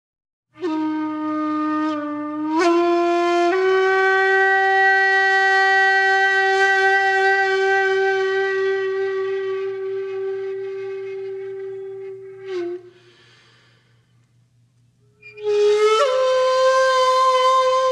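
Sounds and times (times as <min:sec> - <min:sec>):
held horn-like wind instrument note: 0:00.6 - 0:13.7.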